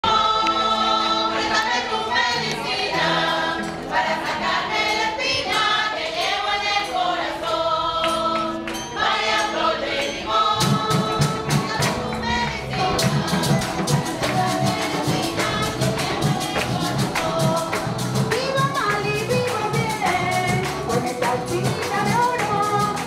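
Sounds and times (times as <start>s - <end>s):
group singing in chorus: 0.0s - 23.0s
string accompaniment: 0.0s - 23.0s
drum beating: 10.5s - 23.0s.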